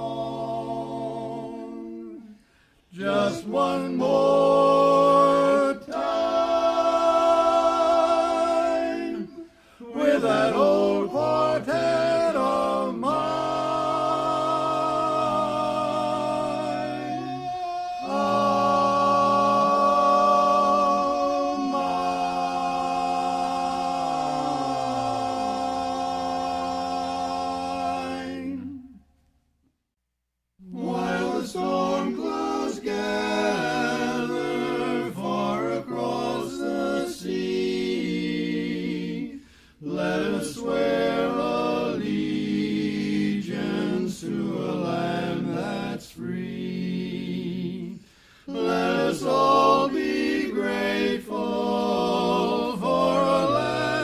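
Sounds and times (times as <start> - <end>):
barbershop quartet singing: 0.0 - 29.0, 30.6 - 54.0.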